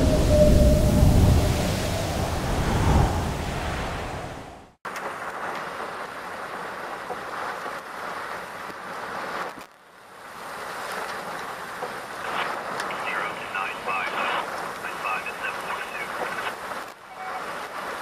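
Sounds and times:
gusting high wind: 0.0 - 18.0
heavy rain pouring: 4.9 - 18.0.

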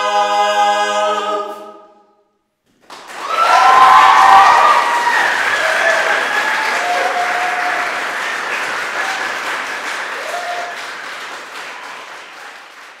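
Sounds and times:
audience applauding: 2.8 - 13.0
brief cheers: 3.1 - 8.3, 10.1 - 10.9.

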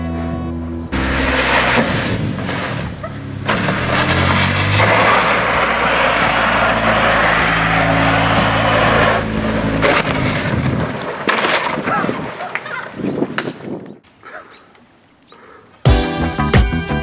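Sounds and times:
car engine running: 0.0 - 11.2.

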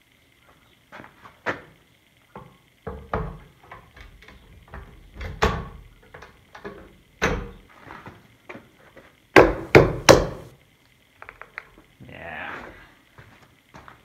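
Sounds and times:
metal clunks and knocks: 2.4 - 7.6.

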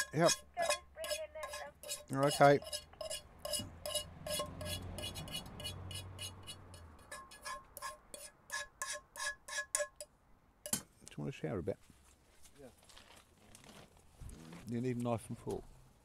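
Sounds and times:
metal utensil scraping frying pan: 0.0 - 10.0.

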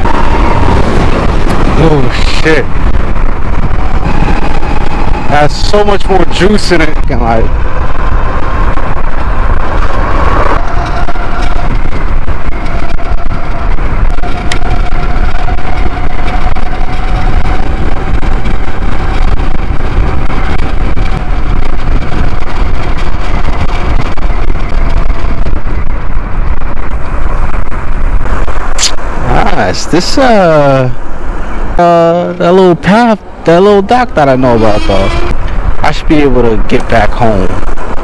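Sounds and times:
wind rushing over microphone: 0.0 - 38.0
electric scooter motor whine: 9.2 - 13.6.

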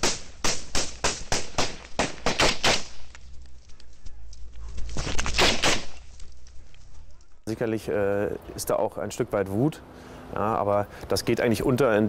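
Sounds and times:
gunshots: 0.0 - 3.1, 5.0 - 6.0.

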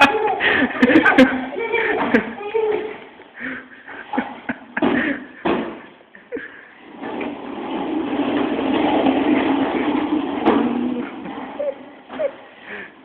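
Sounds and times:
small wheels rolling on tiles: 6.8 - 12.8.

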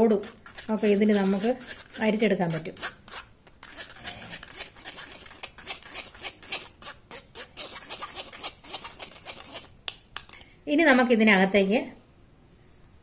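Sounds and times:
metal spoon scraping mesh strainer: 0.0 - 9.7.

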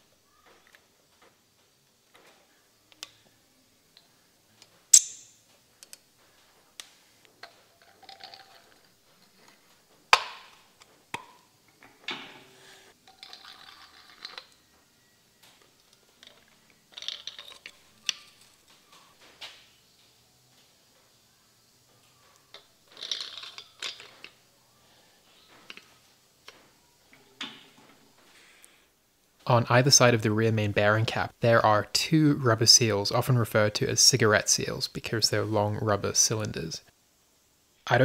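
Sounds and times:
metal parts clinking: 16.2 - 18.7, 22.5 - 24.4.

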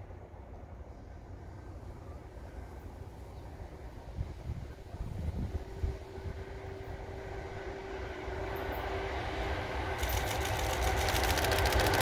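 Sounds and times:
freight train running noise: 0.0 - 12.0
wheels clicking on rails: 8.5 - 12.0.

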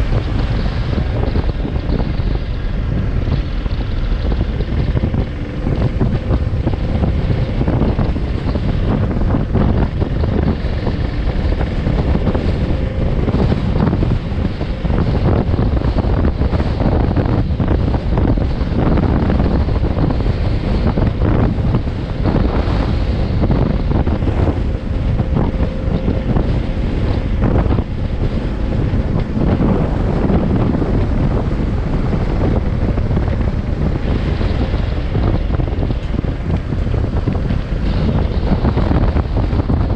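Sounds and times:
motorcycle engine running: 0.0 - 39.9
wind buffeting microphone: 0.0 - 39.9.

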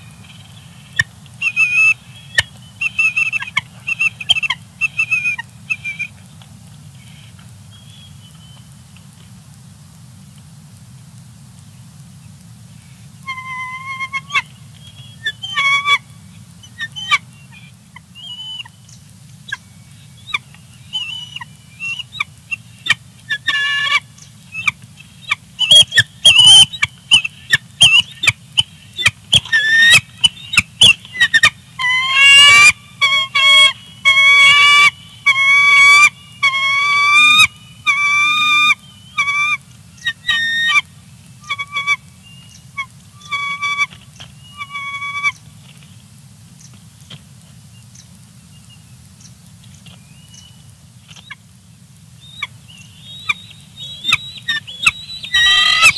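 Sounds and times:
eagle squealing calls: 1.4 - 6.1, 15.2 - 16.0, 25.6 - 42.0, 52.4 - 55.9.

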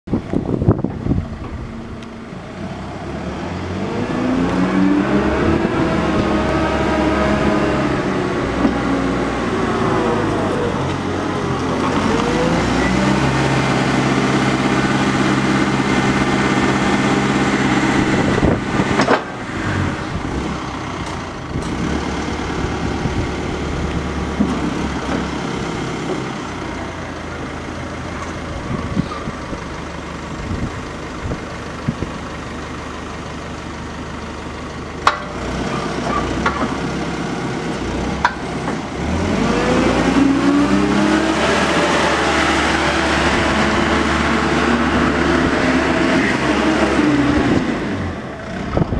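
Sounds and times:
forklift diesel engine running: 0.1 - 48.9
sharp clicks and knocks: 35.0 - 35.4.

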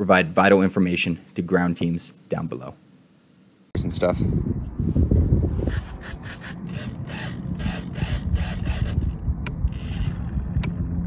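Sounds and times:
servos whirring in bursts: 5.6 - 10.6.

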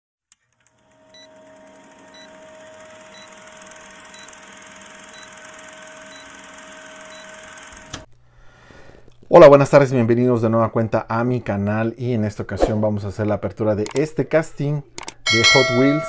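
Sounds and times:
film projector whirring and clattering: 0.3 - 8.1.

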